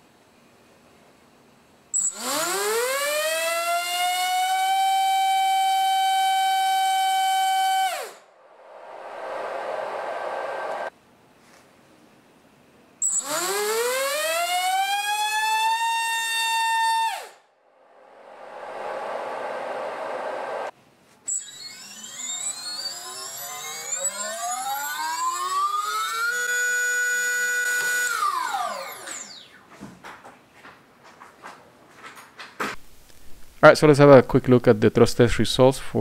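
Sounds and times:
drone motor whine: 2.0 - 10.9, 13.0 - 20.7, 21.3 - 29.7.

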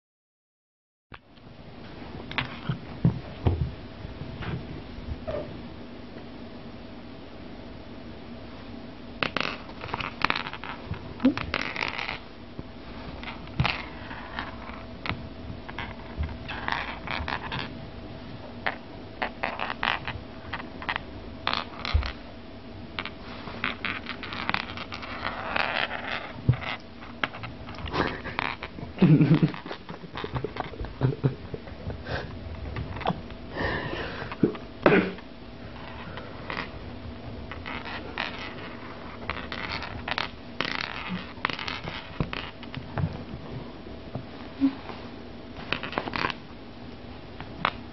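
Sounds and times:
cat scratching and scrabbling: 15.7 - 17.8, 23.0 - 31.0.

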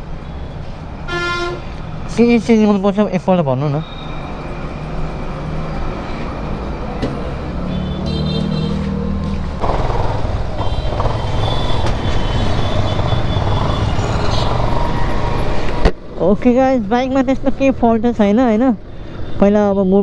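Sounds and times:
vehicle engine running: 8.8 - 14.8.

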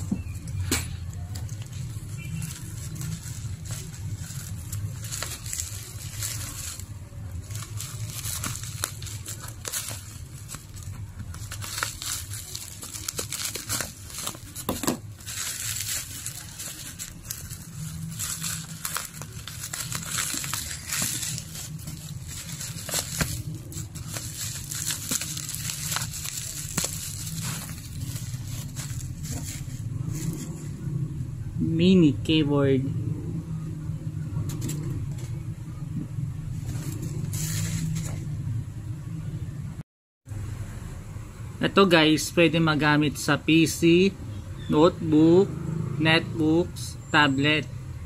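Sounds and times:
bubble wrap crinkling: 0.0 - 30.8, 36.4 - 38.4
steady low hum: 0.0 - 41.7.

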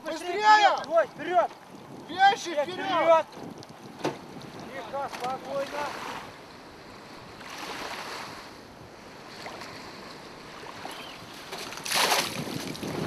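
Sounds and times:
wind on microphone: 0.0 - 13.0
water sloshing and lapping: 3.2 - 13.0
loud splash: 11.5 - 13.0.

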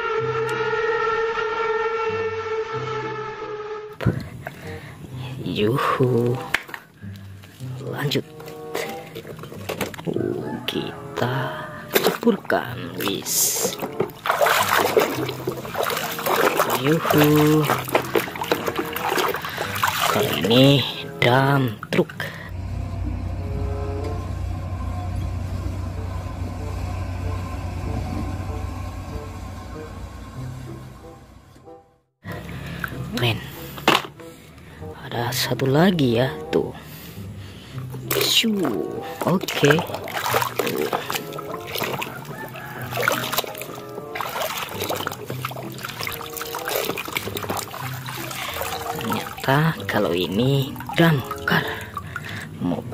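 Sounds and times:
hand splashing in water: 13.0 - 20.7, 38.0 - 52.4
truck diesel engine running: 22.5 - 32.8.

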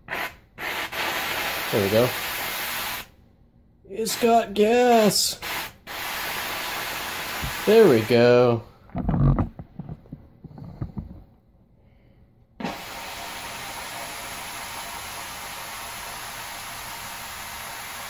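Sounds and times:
steam cleaner hissing: 0.0 - 3.1, 4.0 - 8.6, 12.6 - 18.0.

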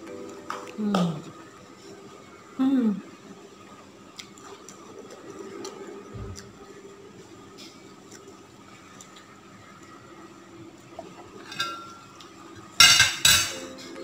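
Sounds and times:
crockery clinking: 11.4 - 12.1, 12.8 - 13.7.

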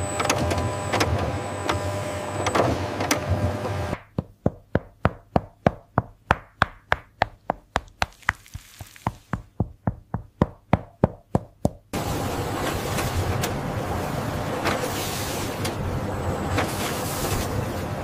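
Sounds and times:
rapid sharp knocks: 4.0 - 8.2.

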